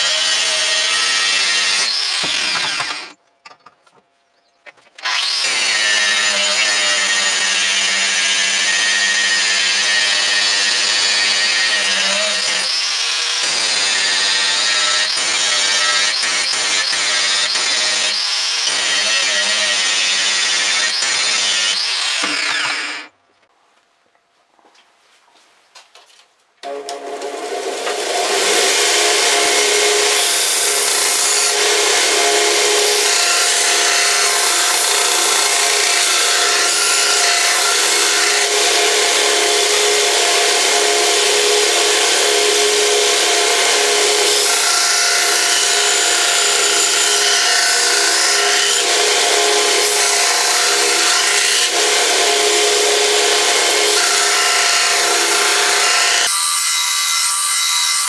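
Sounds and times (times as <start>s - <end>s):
belt grinder motor hum: 22.0s - 23.1s.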